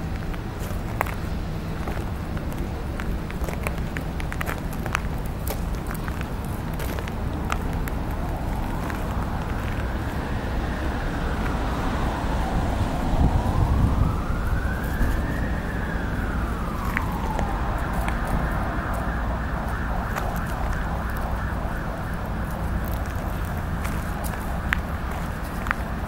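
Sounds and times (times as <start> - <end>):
emergency vehicle siren wailing: 0.0 - 26.0
low rumble: 6.9 - 26.0.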